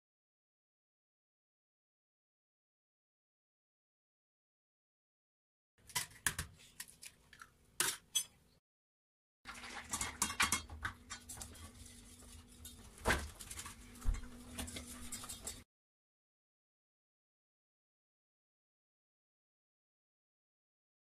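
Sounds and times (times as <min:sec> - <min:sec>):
metal spoon scraping steel pot: 0:09.8 - 0:13.7, 0:14.5 - 0:15.6.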